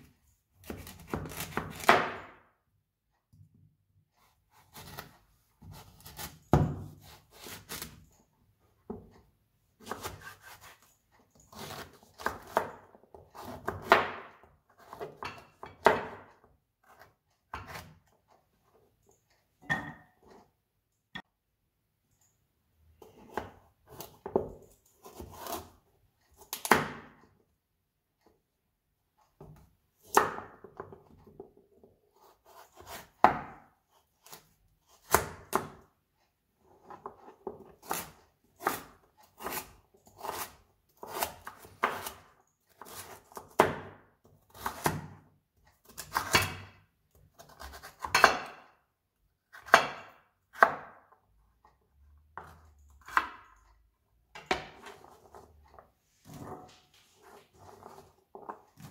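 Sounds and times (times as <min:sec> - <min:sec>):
knife cutting carrots on board: 0:00.0 - 0:02.4, 0:04.2 - 0:08.0, 0:09.8 - 0:18.2, 0:23.0 - 0:27.2, 0:29.4 - 0:35.9, 0:36.6 - 0:48.6, 0:49.4 - 0:51.2, 0:52.3 - 0:53.6, 0:54.4 - 0:58.9.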